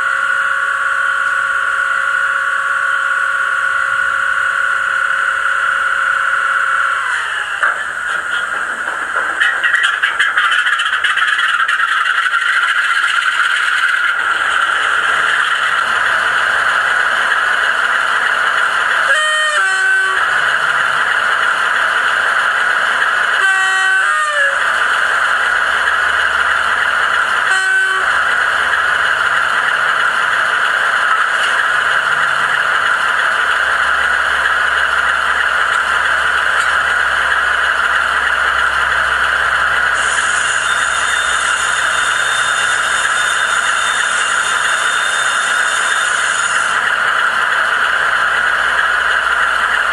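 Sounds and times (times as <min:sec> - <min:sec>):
diesel engine idling: 0:00.0 - 0:43.0, 0:45.7 - 0:49.9
two-tone locomotive horn: 0:19.0 - 0:20.6, 0:23.3 - 0:24.8, 0:27.3 - 0:28.6, 0:40.0 - 0:46.9.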